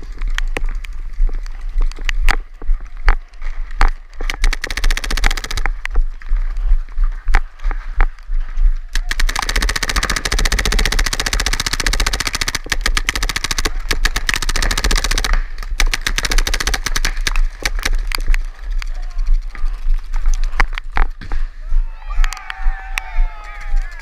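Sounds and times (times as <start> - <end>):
paintball markers firing: 2.0 - 6.0, 8.9 - 21.4.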